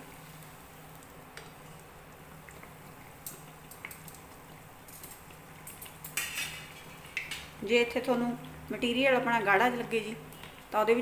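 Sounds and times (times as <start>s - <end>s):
batter sizzling in hot oil: 0.0s - 11.0s
metal tongs clicking on pan: 4.9s - 7.5s.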